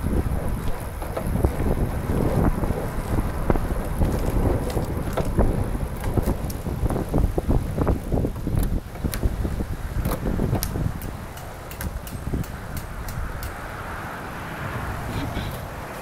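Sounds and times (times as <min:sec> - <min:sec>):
tyres rumbling on road: 0:00.0 - 0:16.0
wind buffeting microphone: 0:00.0 - 0:16.0.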